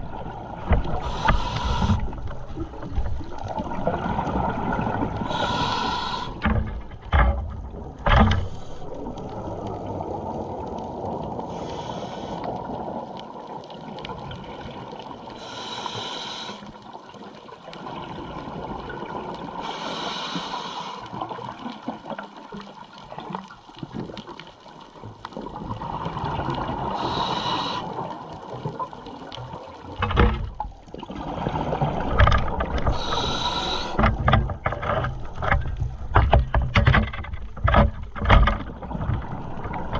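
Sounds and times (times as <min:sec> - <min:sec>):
underwater rush of water: 0:00.0 - 0:39.9
short hissing bursts: 0:05.3 - 0:06.4, 0:27.0 - 0:27.9, 0:33.0 - 0:34.0.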